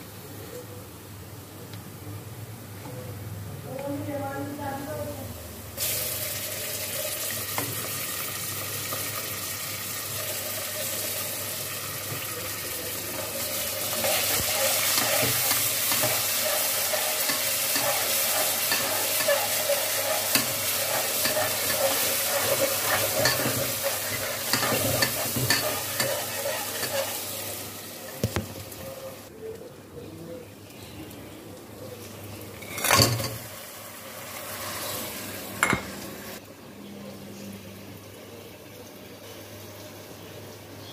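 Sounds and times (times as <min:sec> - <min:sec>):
onions sizzling in hot oil: 0:05.7 - 0:29.3, 0:32.1 - 0:36.4
metal spatula scraping pot: 0:13.8 - 0:27.7.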